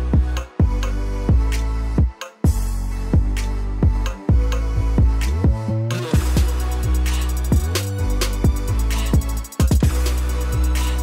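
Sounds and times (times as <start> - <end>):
sustained bass notes: 0.0 - 11.0.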